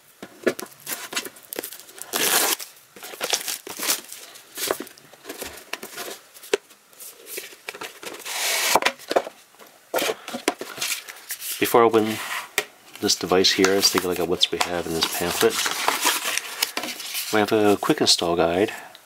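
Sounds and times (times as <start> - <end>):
cardboard rustling and scraping: 0.3 - 17.9
cardboard seal tearing: 0.8 - 6.2, 7.2 - 9.0, 13.6 - 17.3.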